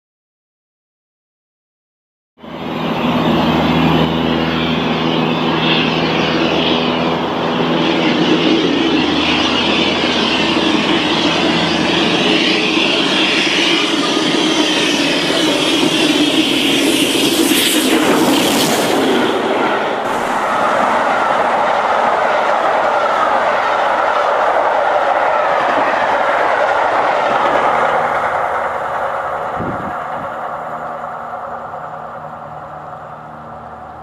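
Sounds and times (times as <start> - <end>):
diesel train engines humming: 2.4 - 34.0
high-pitched steam noise: 13.1 - 24.2.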